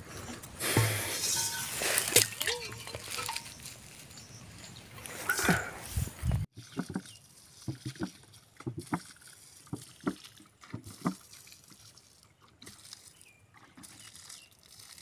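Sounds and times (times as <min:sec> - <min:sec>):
water glugging from a plastic jug: 0:06.5 - 0:15.0.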